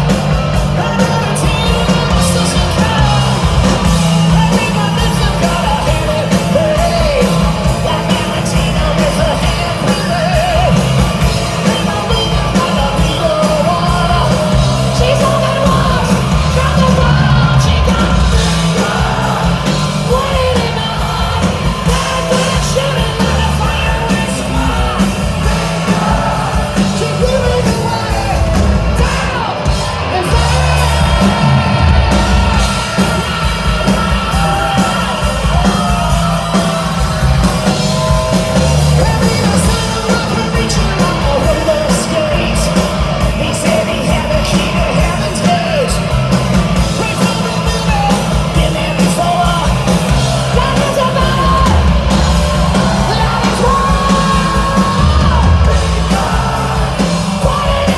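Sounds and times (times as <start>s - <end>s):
live hard rock band: 0.0s - 57.9s
man singing high shouted vocals: 11.6s - 46.0s, 46.8s - 57.9s.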